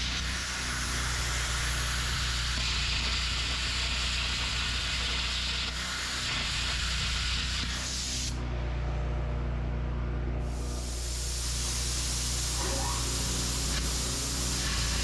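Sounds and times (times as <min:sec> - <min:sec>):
cutting torch hissing: 0:00.0 - 0:08.4, 0:10.4 - 0:15.0
low steady hum: 0:08.4 - 0:14.0.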